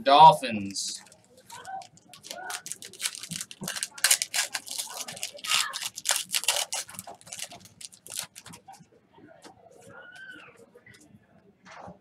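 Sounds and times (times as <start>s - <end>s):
cards and foil wrapper crinkling: 0.9s - 8.7s.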